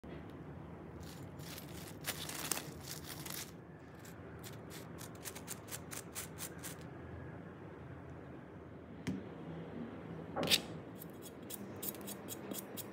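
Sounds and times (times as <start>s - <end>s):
potato chips crunching: 1.0s - 3.6s.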